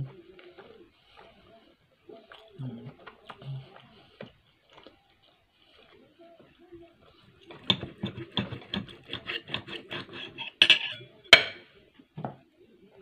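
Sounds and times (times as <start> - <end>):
cutlery clinking on plate: 7.5 - 11.7
knife sawing through steak: 7.6 - 11.0.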